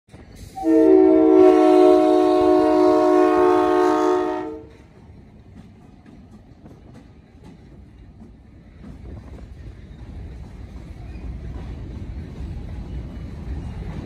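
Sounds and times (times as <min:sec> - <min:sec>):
locomotive air horn blast: 0:00.5 - 0:04.8.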